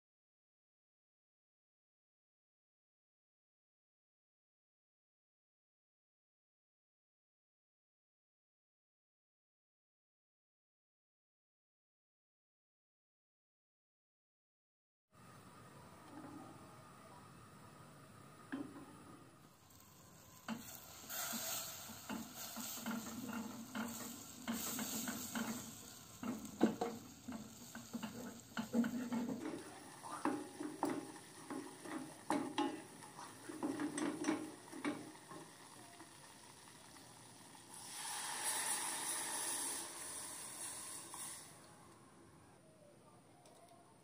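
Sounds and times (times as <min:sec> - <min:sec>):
roux sizzling: 0:19.5 - 0:41.7
milk pouring with rushing hiss: 0:19.5 - 0:41.9
wooden spatula scraping saucepan: 0:20.4 - 0:35.4.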